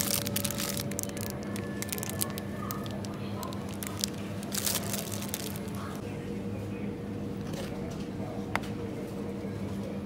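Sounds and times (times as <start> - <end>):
plastic packets crinkling: 0.0 - 6.0
low hum of store background: 0.0 - 10.0.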